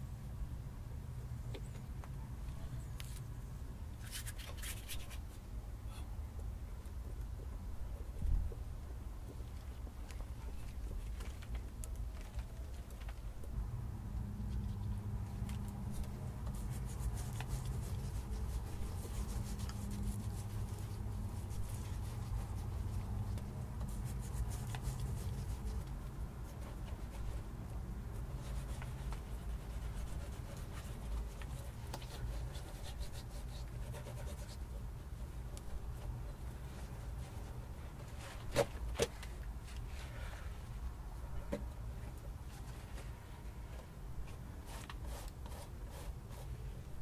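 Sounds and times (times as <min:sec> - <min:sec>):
hands rubbing clay pot: 0:14.5 - 0:38.5.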